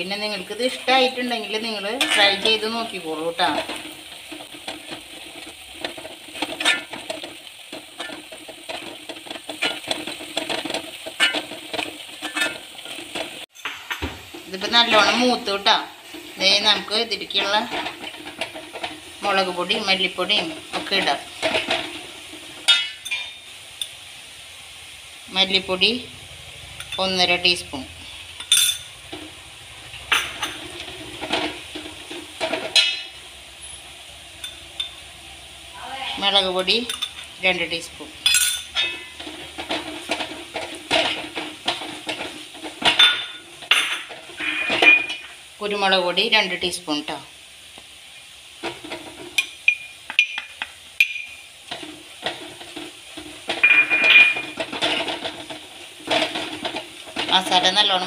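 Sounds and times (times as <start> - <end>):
shallots sizzling in a pan: 0.0 - 58.0
spoon scraping a pan: 0.1 - 24.0, 28.0 - 35.0, 36.4 - 45.5, 48.6 - 58.0
spoon clinking against pan: 28.4 - 29.0, 38.2 - 39.2, 49.4 - 51.5, 53.5 - 54.7.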